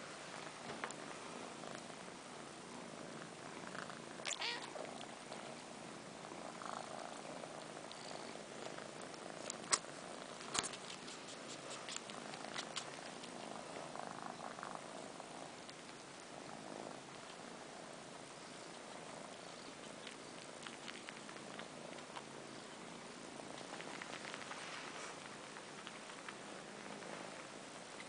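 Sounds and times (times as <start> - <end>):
kittens purring: 0.0 - 28.0
kitten slurping and sucking: 9.4 - 13.5, 19.8 - 22.3.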